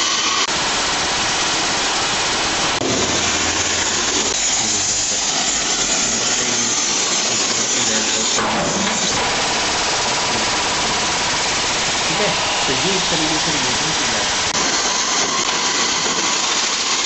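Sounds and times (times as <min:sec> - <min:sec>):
pneumatic rivet gun hammering: 0:02.8 - 0:09.4, 0:14.5 - 0:17.0.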